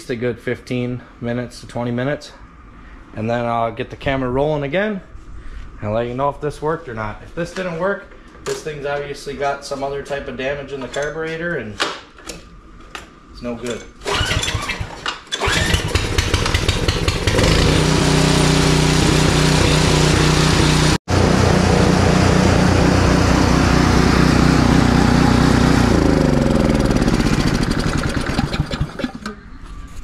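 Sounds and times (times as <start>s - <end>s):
snowblower engine running: 15.4s - 29.3s.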